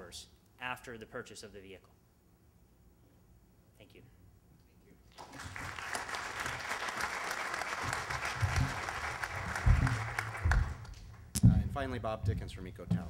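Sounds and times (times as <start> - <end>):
audience applauding: 5.1 - 11.2
low thumps: 8.4 - 13.0.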